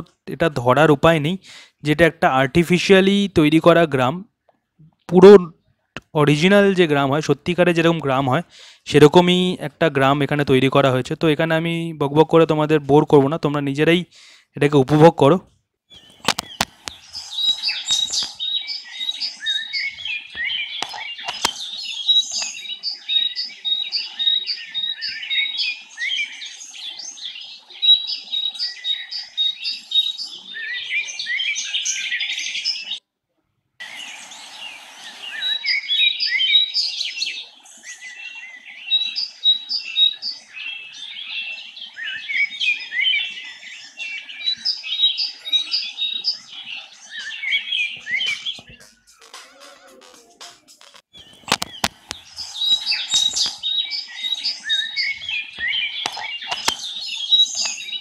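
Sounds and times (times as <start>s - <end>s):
small birds chirping: 0.0s - 33.1s, 33.8s - 58.0s
clicks: 16.2s - 17.0s, 20.3s - 21.6s, 48.3s - 52.3s, 55.6s - 56.9s.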